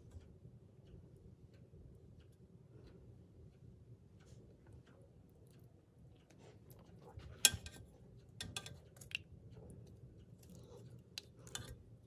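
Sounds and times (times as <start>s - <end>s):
chopsticks clicking on steel pot: 7.4s - 9.3s, 11.1s - 11.8s.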